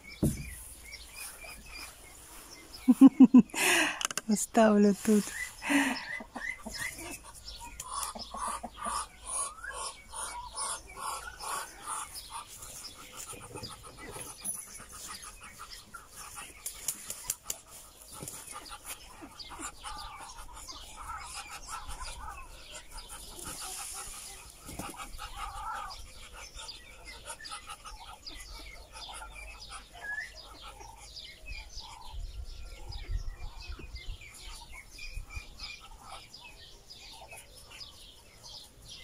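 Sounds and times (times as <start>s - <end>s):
ducks calling: 0.0s - 4.0s, 5.1s - 32.2s.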